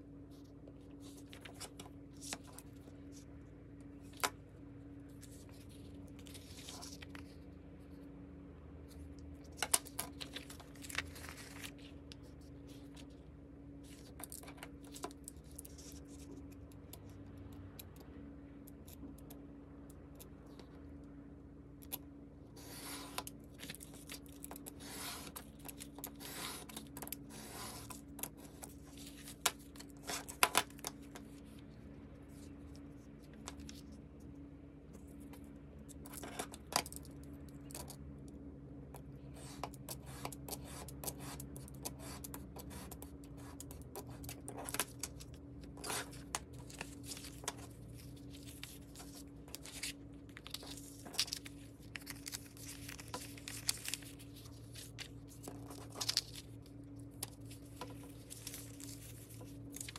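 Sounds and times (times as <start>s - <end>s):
faint low hum: 0.0s - 59.9s
clicks and scrapes of handling: 21.8s - 59.9s
craft knife cutting paper: 22.6s - 31.4s, 39.3s - 56.5s.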